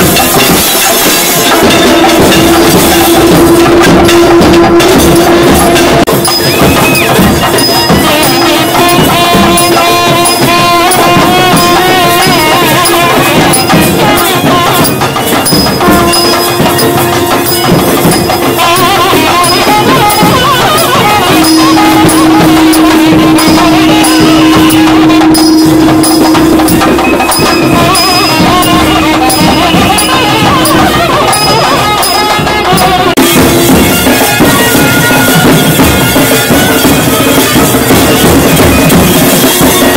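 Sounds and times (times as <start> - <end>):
wavering melody line: 0.0 - 35.8
dense drumming: 0.0 - 39.9
held drone note: 0.0 - 39.9.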